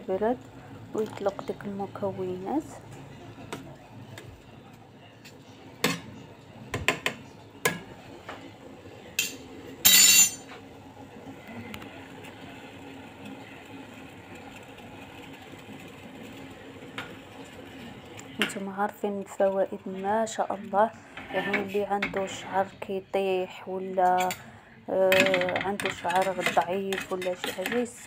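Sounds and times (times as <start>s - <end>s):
metal spoon clinking in pot: 9.2s - 10.4s.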